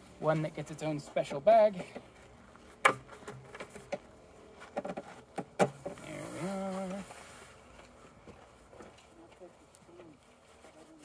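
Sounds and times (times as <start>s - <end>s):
sharp knocks on wood: 2.8s - 3.6s
fabric rubbing along tube: 6.0s - 7.6s.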